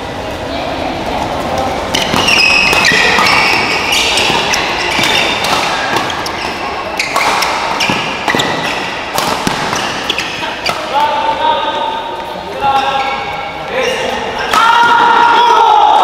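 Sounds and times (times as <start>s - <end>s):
shoes squeaking on court floor: 1.2s - 14.2s
racket hitting shuttlecock: 1.9s - 11.3s.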